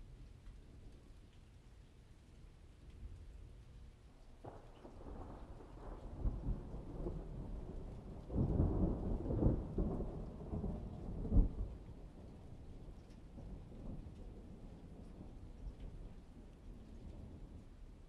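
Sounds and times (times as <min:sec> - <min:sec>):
rolling thunder: 0:04.4 - 0:17.7.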